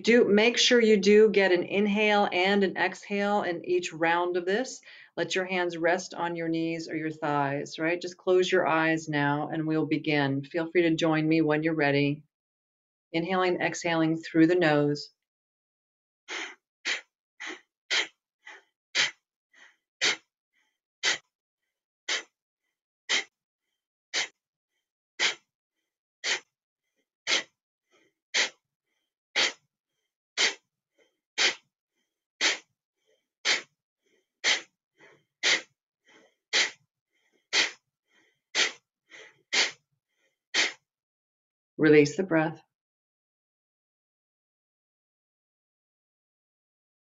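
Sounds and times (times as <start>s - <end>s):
forceful nasal exhales: 31.4s - 31.7s, 32.4s - 32.7s, 33.4s - 33.7s, 34.4s - 39.8s, 40.6s - 40.8s.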